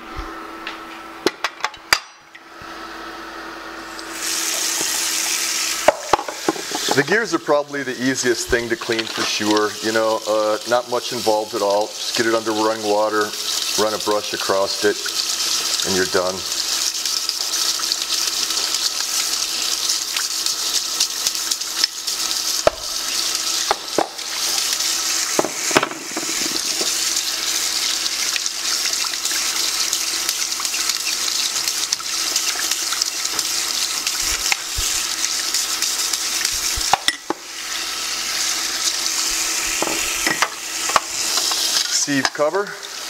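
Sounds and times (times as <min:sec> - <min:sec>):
tap running into a sink: 0:05.8 - 0:07.2, 0:22.6 - 0:37.4, 0:39.6 - 0:42.5.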